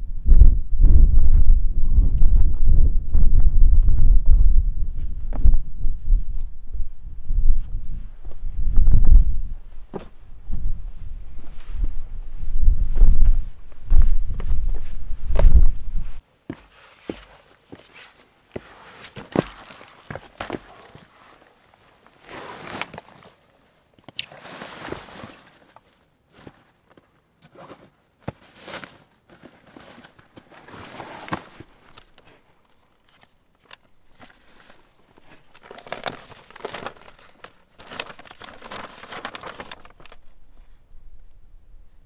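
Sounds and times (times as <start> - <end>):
rustling of pack fabric: 9.7 - 40.8
paper map crinkling: 17.6 - 23.5, 27.5 - 40.8.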